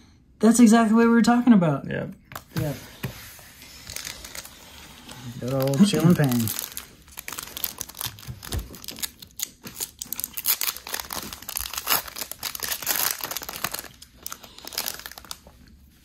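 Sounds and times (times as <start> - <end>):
foil wrapper crinkling and tearing: 3.7 - 15.8.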